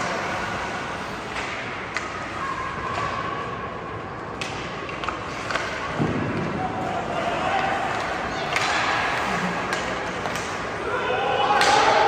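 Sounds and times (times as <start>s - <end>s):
arena noise: 0.0s - 12.0s
hockey sticks and puck knocks: 1.1s - 3.5s, 4.2s - 10.8s, 11.4s - 12.0s.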